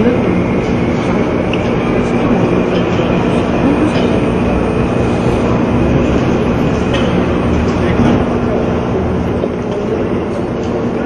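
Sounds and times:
rumbling terminal hall noise: 0.0s - 11.0s.

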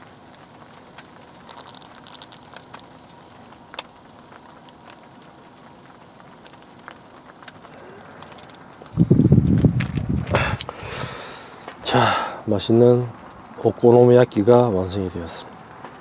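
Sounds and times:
food sizzling in frying pan: 0.0s - 14.2s.

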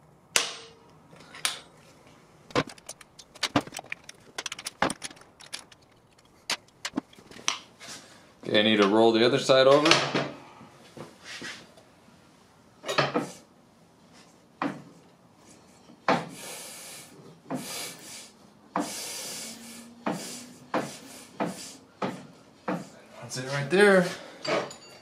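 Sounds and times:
knocks and clunks of rear wheel: 2.5s - 7.5s.

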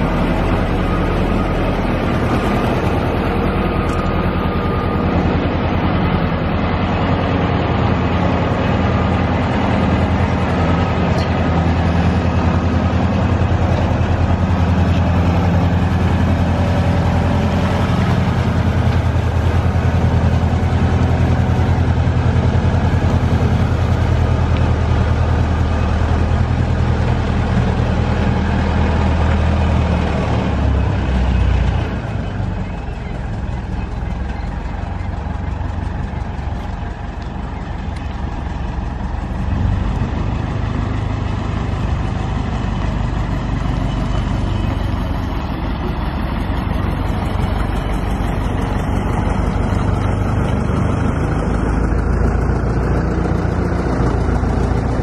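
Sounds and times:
boat lift engine droning: 0.0s - 55.0s.

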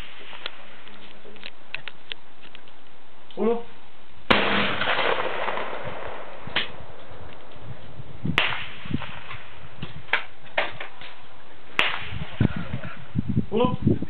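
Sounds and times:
faint gunshot cracks: 4.3s - 6.8s, 8.4s - 9.4s, 11.8s - 12.3s
shotgun shots with echo: 4.3s - 6.8s, 8.4s - 9.5s, 11.8s - 12.4s.

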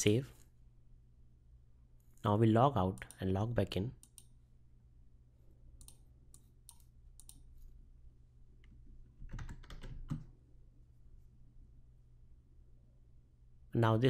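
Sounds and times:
typing on computer keyboard: 9.2s - 10.3s.

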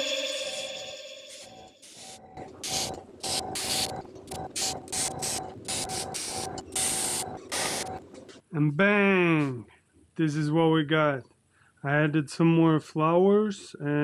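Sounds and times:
airbrush spraying hisses: 1.3s - 3.9s.

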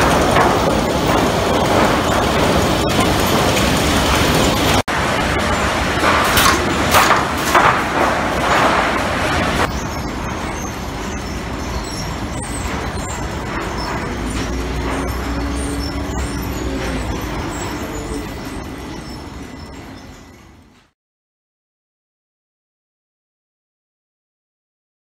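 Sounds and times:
boards clattering and knocking: 0.0s - 4.8s, 5.9s - 9.7s
forklift engine running: 0.0s - 20.8s.

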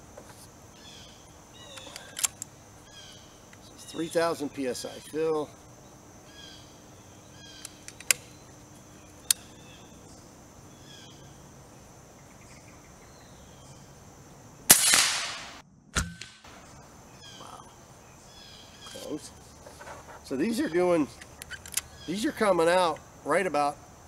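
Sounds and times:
air rifle loading clicks: 1.7s - 2.5s, 7.6s - 8.3s, 21.2s - 22.0s
air rifle shot crack: 14.7s - 16.5s.

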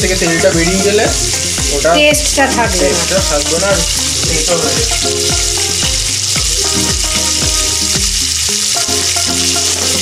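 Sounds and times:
background music with bass: 0.0s - 10.0s
crab sizzling in hot oil: 0.0s - 10.0s.

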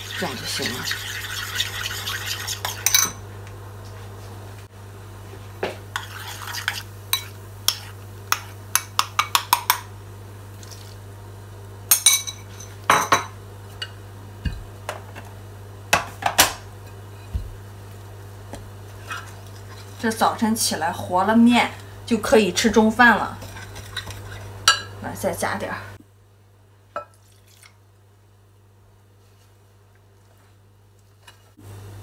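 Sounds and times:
utensil scraping bowl: 0.0s - 3.2s, 5.9s - 8.6s, 23.1s - 24.6s
utensil clinking against bowls: 0.1s - 3.2s.

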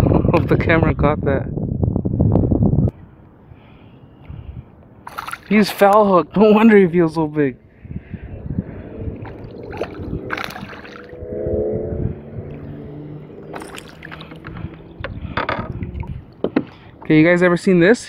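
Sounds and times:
water sloshing: 5.0s - 6.0s, 9.1s - 11.2s, 12.6s - 17.1s.

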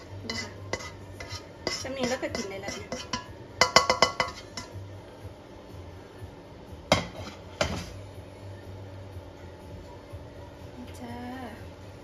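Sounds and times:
pan clanking: 0.0s - 4.8s, 6.9s - 8.0s
spatula scraping frying pan: 0.0s - 4.8s, 6.9s - 8.0s.

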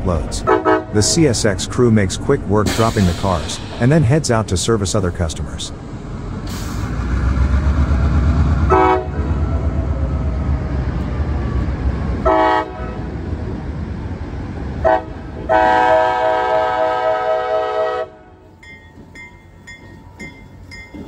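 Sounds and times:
diesel locomotive engine rumble: 0.0s - 21.0s
train air horn blasts: 0.4s - 1.1s, 8.6s - 9.4s, 12.2s - 13.0s, 14.8s - 18.4s.

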